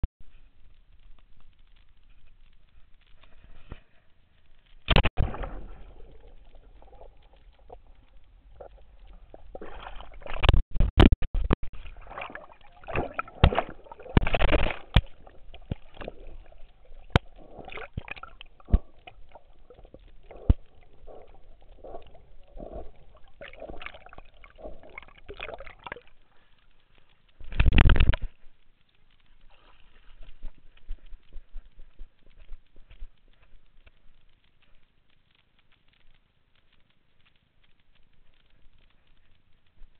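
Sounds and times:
pool water sloshing and gurgling: 5.2 - 10.6, 11.7 - 26.2.

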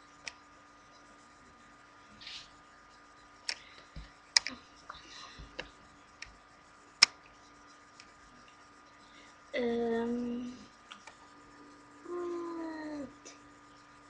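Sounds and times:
faint electrical hum: 0.0 - 14.0
sharp clicks and light taps: 7.0 - 8.6.

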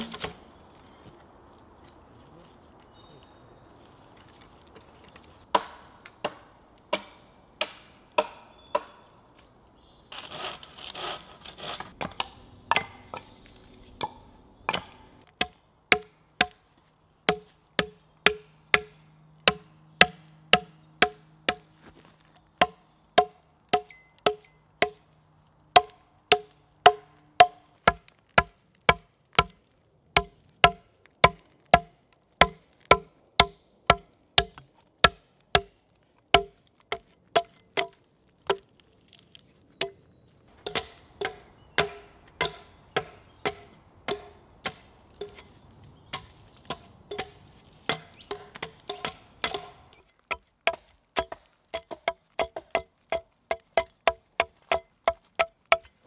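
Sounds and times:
hatchet chopping log: 5.5 - 9.0, 11.0 - 13.3, 14.0 - 16.6, 17.3 - 21.7, 22.6 - 25.0, 25.8 - 29.6, 30.2 - 38.7, 40.6 - 45.5, 46.1 - 56.0.

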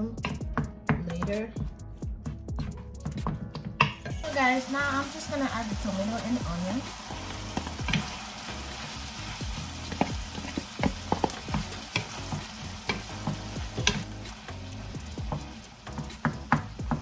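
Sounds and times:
meat sizzling in a pan: 4.2 - 17.0.

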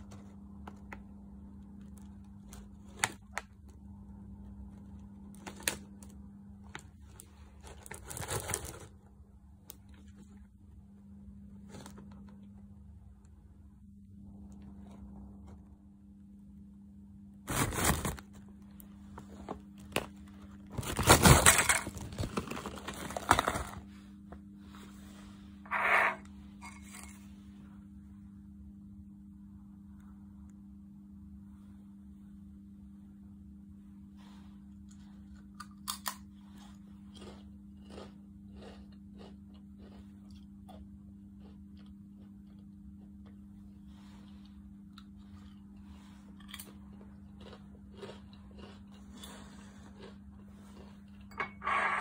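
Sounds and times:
chip bag crinkling: 5.0 - 9.1, 17.5 - 23.9, 46.3 - 51.3
potato chip crunching: 19.7 - 23.8, 35.3 - 43.5, 44.8 - 51.3.

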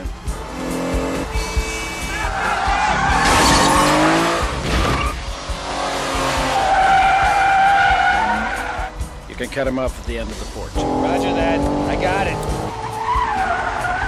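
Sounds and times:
car engines revving: 0.0 - 14.0
tyres squealing: 1.3 - 5.2, 6.4 - 8.9, 12.5 - 14.0.

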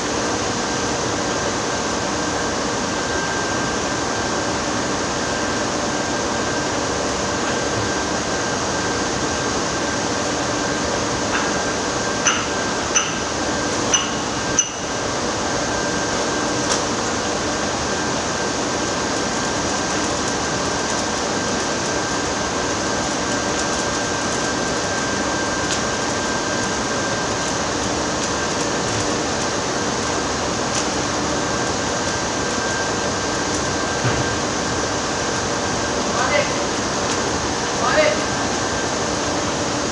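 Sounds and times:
arc welding hiss: 0.2 - 39.9
sharp high pings: 12.2 - 13.2, 13.9 - 14.9.

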